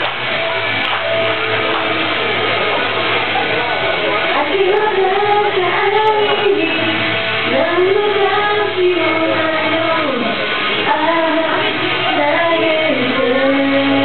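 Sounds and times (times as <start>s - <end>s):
karaoke backing track: 0.0s - 14.0s
woman singing into a microphone: 4.3s - 14.0s.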